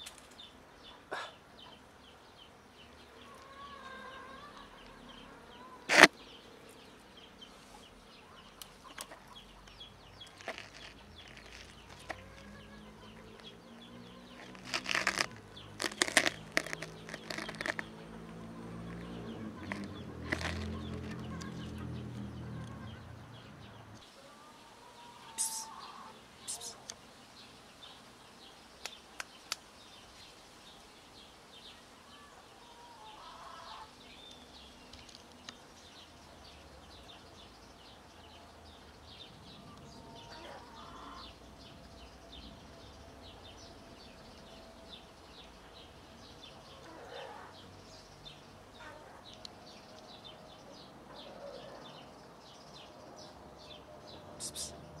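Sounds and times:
small birds chirping: 0.0s - 55.0s
sharp clicks: 14.4s - 17.9s.

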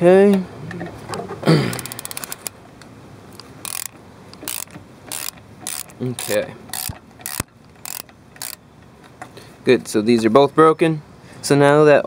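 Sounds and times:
ratchet clicking: 1.7s - 2.5s, 3.6s - 8.6s.

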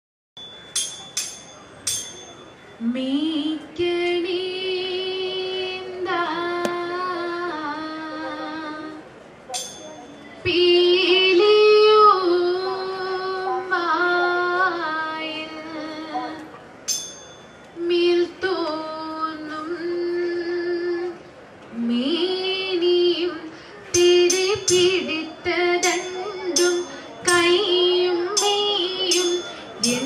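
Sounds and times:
sharp ringing strikes: 0.4s - 2.7s, 9.6s - 10.4s, 16.9s - 17.7s, 25.8s - 27.6s, 28.3s - 30.0s
girls singing: 2.8s - 8.9s, 21.9s - 30.0s.

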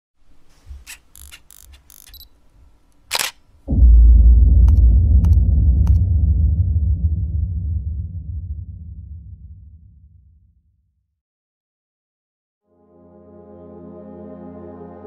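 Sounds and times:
whoosh: 3.7s - 10.0s
deep booming hit rumbling: 3.7s - 10.4s.

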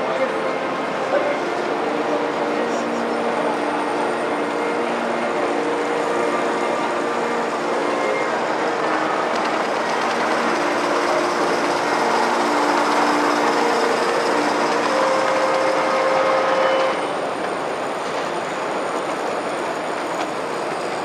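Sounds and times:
model train wheels clattering: 8.2s - 21.0s.

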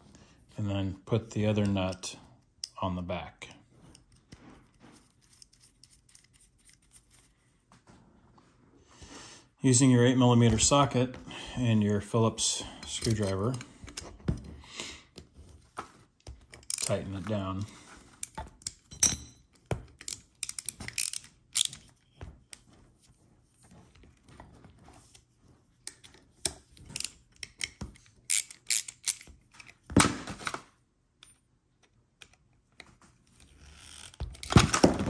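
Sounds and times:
socket ratchet clicking: 20.0s - 21.8s, 26.5s - 29.3s.

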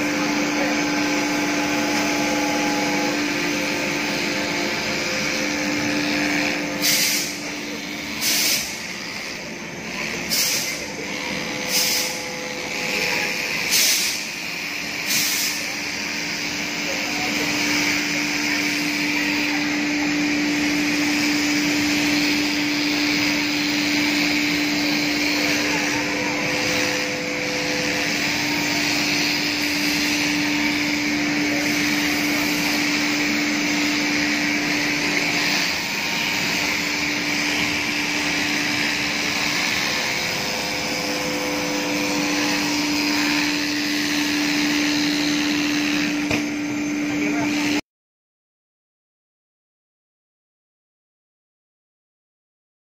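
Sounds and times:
electric scissors cutting: 17.1s - 46.6s.

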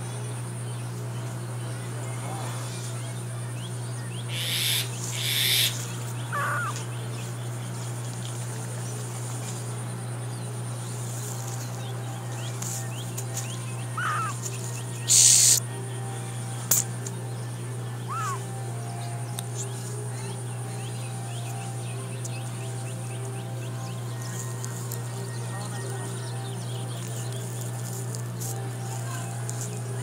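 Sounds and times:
steady low hum: 0.0s - 30.0s
mongoose squeaky calls: 4.3s - 6.8s, 14.0s - 14.4s, 15.1s - 15.6s, 18.1s - 18.4s.

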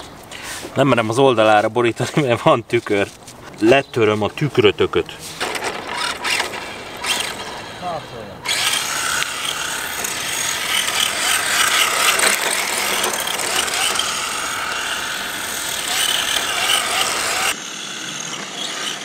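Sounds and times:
tyres scrubbing on asphalt: 0.1s - 17.6s
electric motor and gear whine: 4.9s - 19.0s.

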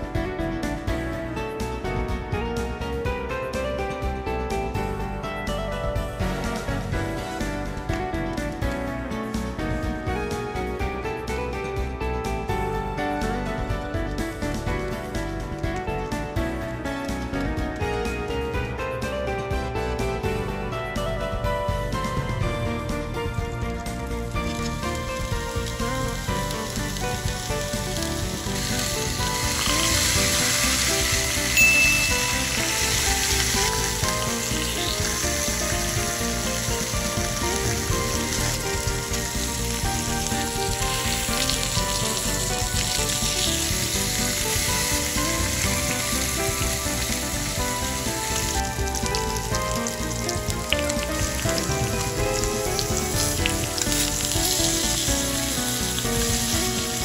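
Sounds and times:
steak sizzling in pan: 24.2s - 57.0s.

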